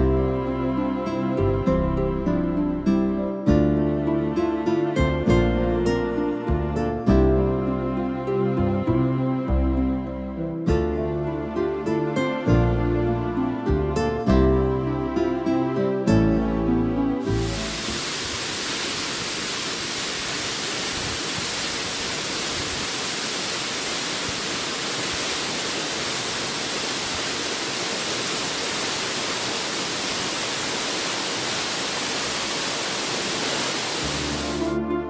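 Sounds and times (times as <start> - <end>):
soft background music: 0.0 - 17.9, 34.0 - 35.0
waterfall rushing: 17.2 - 34.8.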